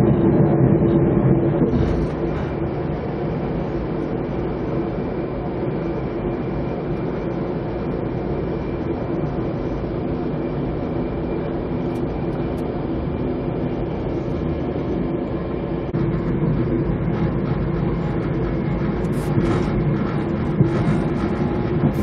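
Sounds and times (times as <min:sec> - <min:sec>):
train wheels rumbling on rails: 0:01.4 - 0:04.4, 0:15.9 - 0:22.0.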